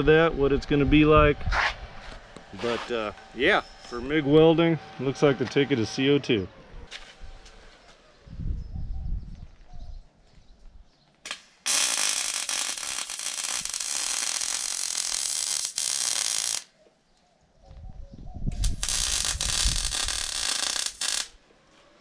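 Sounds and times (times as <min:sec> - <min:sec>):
welding arc crackling and hissing: 0:11.3 - 0:16.7, 0:18.6 - 0:21.4.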